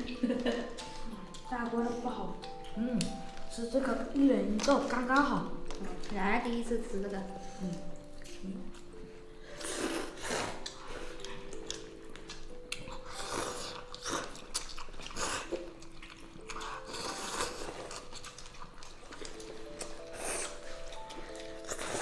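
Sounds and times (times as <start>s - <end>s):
light background music: 0.0s - 22.0s
wet noodle slurps: 16.6s - 18.1s.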